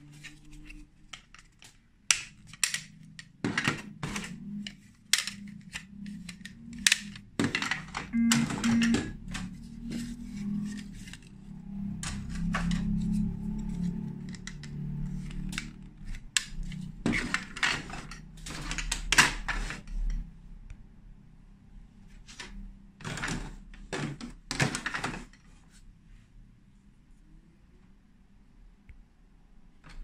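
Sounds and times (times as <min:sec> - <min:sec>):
plastic bricks clicking and clattering: 0:01.1 - 0:08.1, 0:14.2 - 0:20.2.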